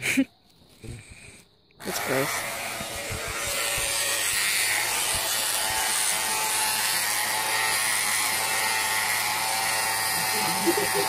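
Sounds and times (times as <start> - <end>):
electric hair clippers humming: 1.9 - 11.0.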